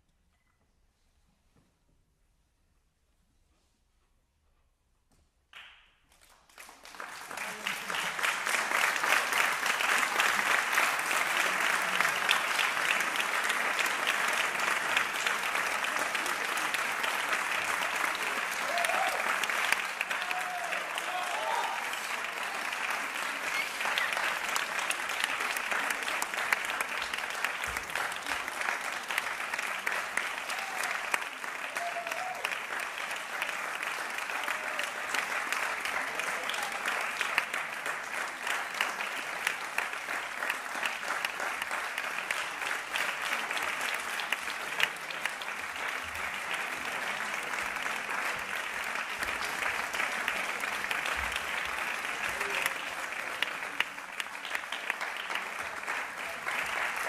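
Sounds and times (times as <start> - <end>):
audience applauding: 5.6 - 57.0.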